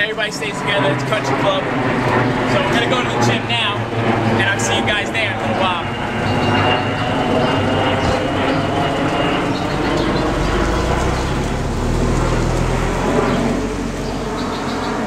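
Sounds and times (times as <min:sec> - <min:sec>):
car engine accelerating: 0:08.0 - 0:15.0.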